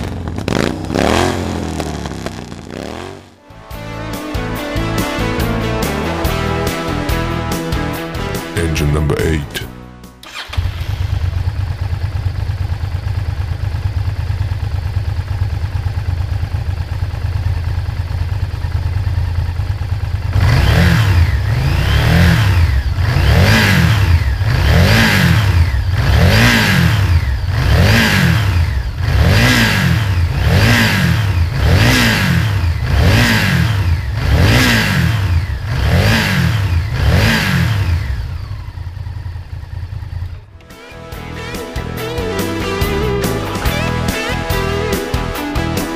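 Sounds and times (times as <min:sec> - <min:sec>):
motorcycle engine idling: 0:00.0 - 0:03.4, 0:10.2 - 0:40.7
motorcycle engine revving: 0:00.0 - 0:03.5, 0:10.2 - 0:45.9.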